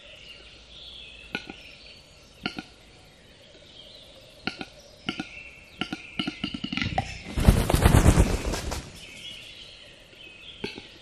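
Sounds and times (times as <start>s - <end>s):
bird display song of dry clicks: 0.0s - 7.4s, 8.2s - 11.0s.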